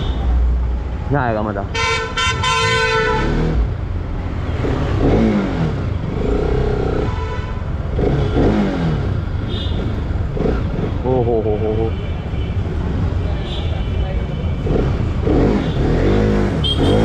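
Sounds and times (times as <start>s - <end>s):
traffic rumble: 0.0s - 17.0s
vehicle horn: 1.7s - 3.4s, 7.0s - 7.6s, 16.6s - 17.0s
motorcycle engine revving: 3.0s - 7.1s, 7.8s - 11.6s, 14.6s - 17.0s.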